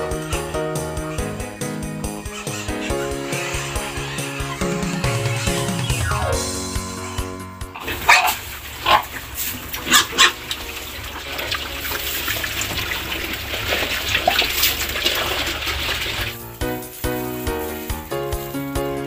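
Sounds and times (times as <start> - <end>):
pigs chewing and snuffling: 0.0 - 6.1, 7.8 - 19.0
pig squeals: 0.0 - 6.4, 7.8 - 16.3.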